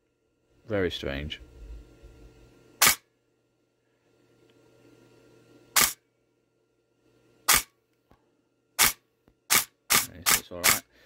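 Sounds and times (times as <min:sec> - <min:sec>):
airsoft gun shots: 0:02.8 - 0:03.0, 0:05.8 - 0:06.0, 0:07.5 - 0:07.8, 0:08.8 - 0:10.8.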